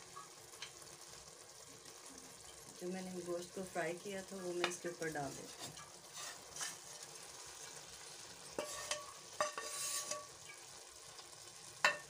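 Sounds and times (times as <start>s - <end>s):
low steady hiss: 0.0s - 12.0s
wooden spoon scraping a pan: 4.6s - 10.7s.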